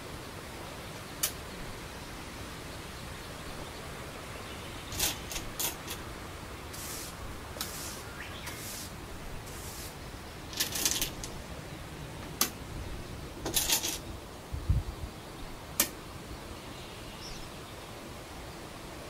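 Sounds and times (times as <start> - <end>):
steady hiss: 0.0 - 19.0
hissing rustles: 4.8 - 11.5.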